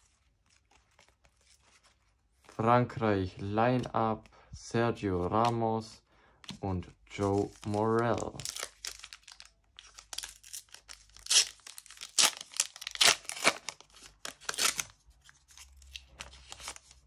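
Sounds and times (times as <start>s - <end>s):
wrapper torn open and crinkled: 7.2s - 17.0s.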